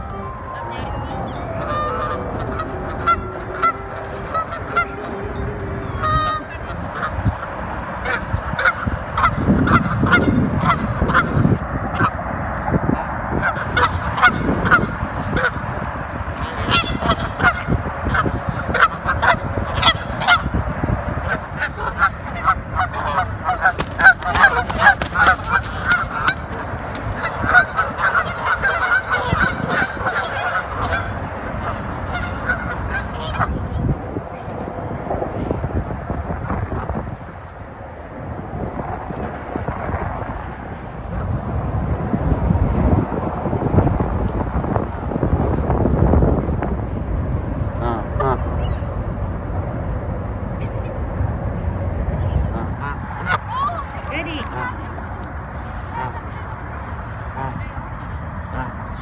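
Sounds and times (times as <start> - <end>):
geese honking: 0.0 - 12.2, 13.3 - 15.7, 16.3 - 20.6, 21.2 - 33.9, 52.4 - 53.6, 55.6 - 56.6, 57.2 - 57.8, 58.4 - 59.0.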